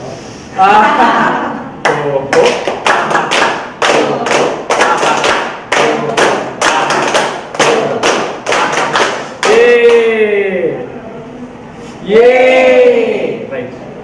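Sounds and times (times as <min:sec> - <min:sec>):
group clapping in rhythm: 0:01.8 - 0:10.2.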